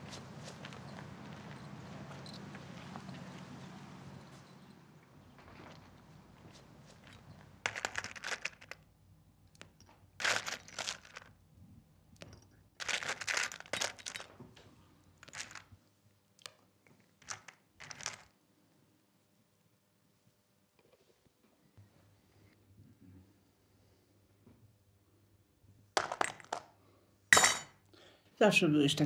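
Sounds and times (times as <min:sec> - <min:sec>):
sugar cubes crunching and rattling: 0:07.7 - 0:08.8, 0:10.2 - 0:11.4, 0:12.8 - 0:14.3, 0:15.2 - 0:15.7, 0:17.2 - 0:18.3.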